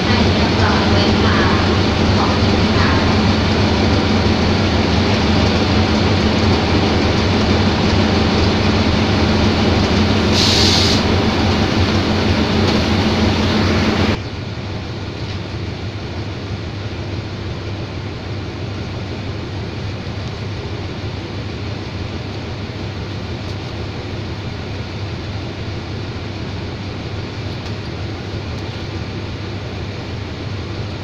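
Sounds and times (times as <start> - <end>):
locomotive engine idling: 0.0 - 31.0
brief hiss: 10.3 - 11.1.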